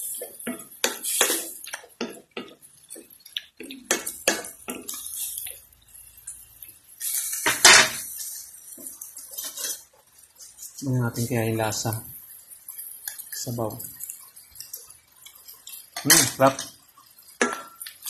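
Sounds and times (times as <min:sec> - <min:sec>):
wooden spatula scraping steel pan: 0:00.1 - 0:02.2, 0:07.0 - 0:10.9.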